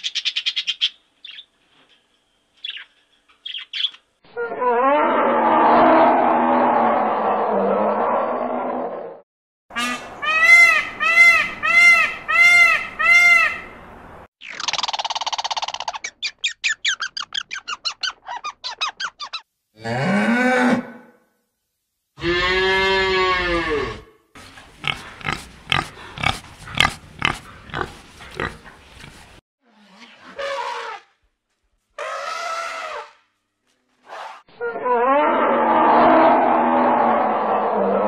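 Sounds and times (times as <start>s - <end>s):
rising and falling animal calls: 3.6s - 9.2s, 34.5s - 38.0s
long drawn-out animal call: 22.2s - 24.2s, 34.5s - 38.0s
pig grunts: 24.5s - 29.3s.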